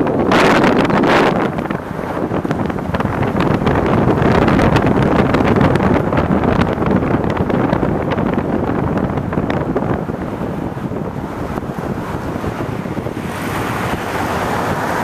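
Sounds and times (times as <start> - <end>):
vehicle road noise: 0.0 - 15.0
wind buffeting microphone: 0.0 - 15.0.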